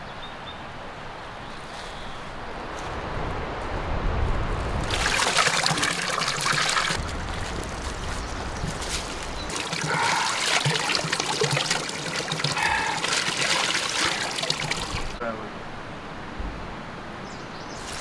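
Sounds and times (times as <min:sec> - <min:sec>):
water trickling onto wet ground: 0:04.8 - 0:15.2.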